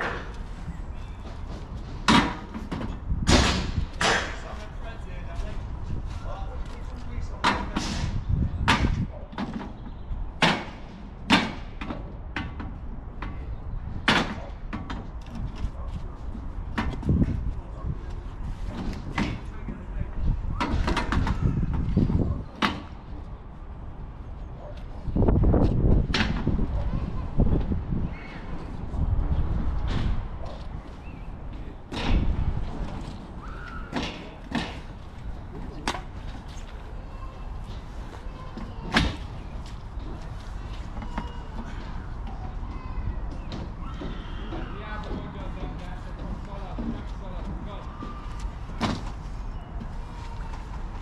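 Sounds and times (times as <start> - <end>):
sharp bangs and knocks: 2.0 - 4.5, 10.4 - 12.7.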